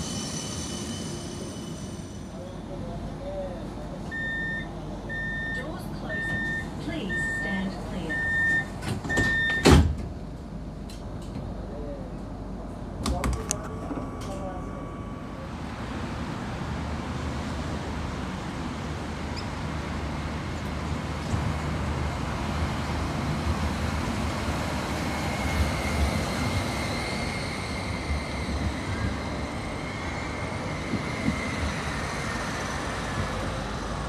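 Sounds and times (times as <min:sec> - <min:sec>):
tram wheels rumbling: 0:00.0 - 0:34.0
road traffic: 0:13.6 - 0:34.0.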